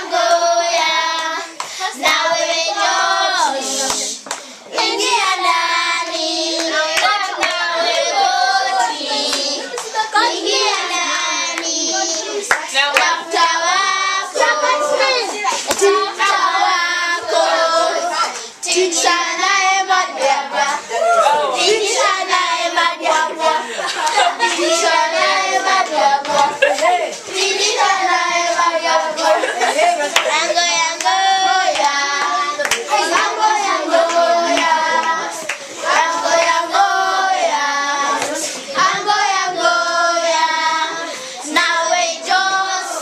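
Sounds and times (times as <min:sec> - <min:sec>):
children singing: 0:00.0 - 0:43.0
hand claps: 0:01.2 - 0:02.2, 0:03.9 - 0:04.9, 0:06.6 - 0:07.6, 0:12.5 - 0:13.2, 0:30.1 - 0:30.4, 0:31.0 - 0:33.4, 0:34.0 - 0:36.6.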